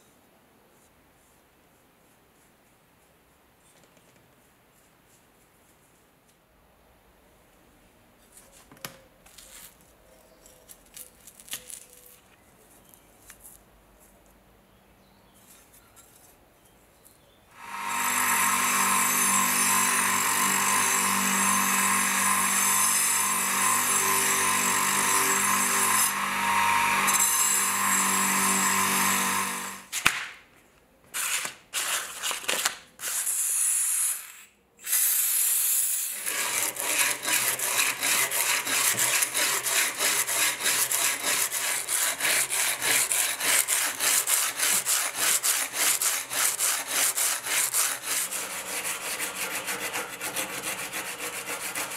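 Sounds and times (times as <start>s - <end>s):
small electric motor running: 17.6s - 29.8s
abrasive rasping on steel blade: 36.0s - 51.9s.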